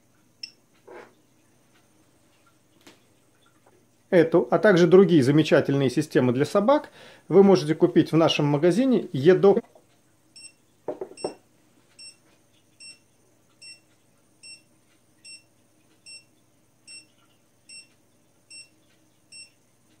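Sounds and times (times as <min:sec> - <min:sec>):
collar knocking on table: 0:10.9 - 0:11.4.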